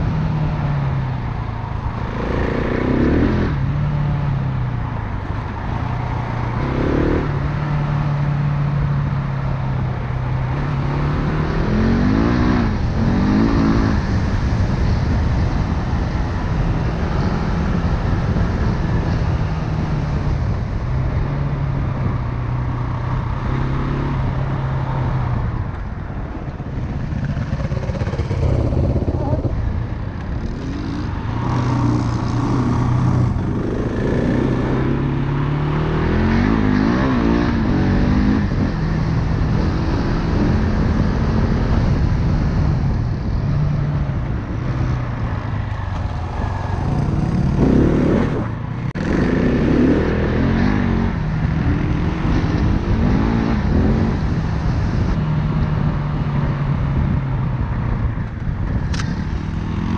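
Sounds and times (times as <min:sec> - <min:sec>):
dirt bike engine revving: 0:27.1 - 0:29.6, 0:46.2 - 0:51.1.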